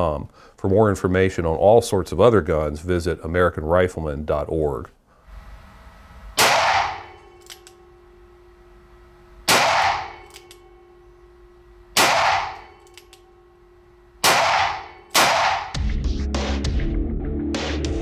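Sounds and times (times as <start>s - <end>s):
revolver gunshots: 6.4s - 7.2s, 9.4s - 10.4s, 11.9s - 12.8s, 14.2s - 15.8s.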